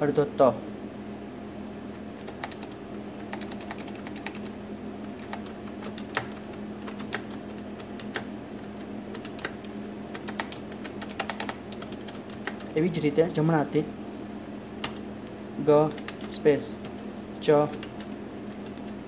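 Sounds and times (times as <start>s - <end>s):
steady low hum: 0.0s - 19.0s
keyboard keystroke clicks: 9.1s - 12.7s.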